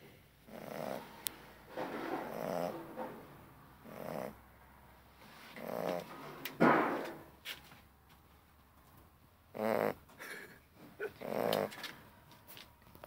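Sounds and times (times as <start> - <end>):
puppy snoring: 0.4 - 4.4, 5.5 - 6.3, 9.5 - 10.1, 11.0 - 11.9.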